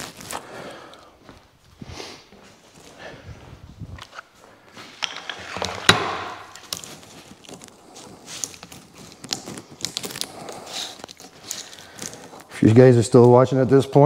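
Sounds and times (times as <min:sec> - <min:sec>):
plastic blister pack crackling: 0:00.0 - 0:00.6, 0:06.5 - 0:12.7.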